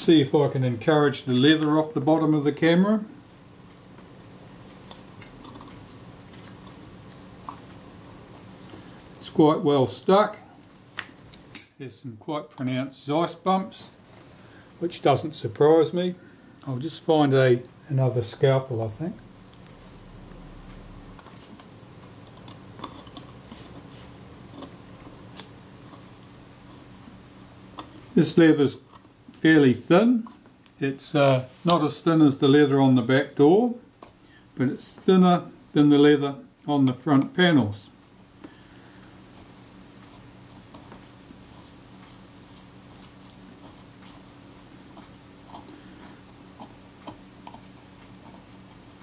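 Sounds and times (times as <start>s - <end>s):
faint steady hum: 0.0s - 49.0s
blade scraping leather: 38.9s - 49.0s.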